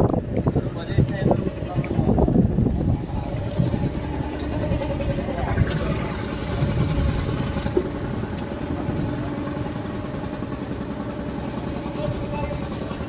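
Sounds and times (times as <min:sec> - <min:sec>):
boat engine rumbling: 0:00.0 - 0:13.0.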